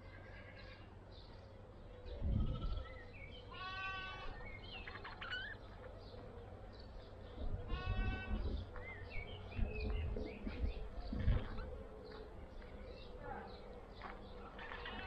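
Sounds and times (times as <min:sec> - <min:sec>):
wind rumble on microphone: 0:02.1 - 0:02.9, 0:07.2 - 0:12.0
buzzy bird calls: 0:02.2 - 0:06.2.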